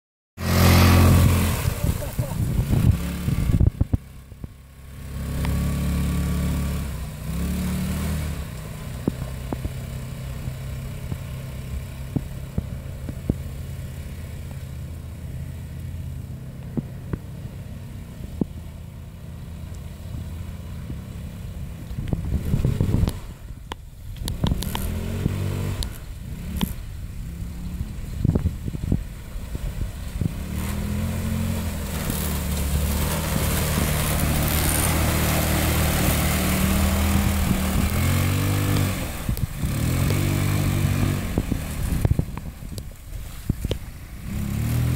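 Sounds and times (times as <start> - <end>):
go-kart engine revving: 0.4 - 3.9, 4.8 - 12.8, 30.2 - 42.7, 44.2 - 44.9.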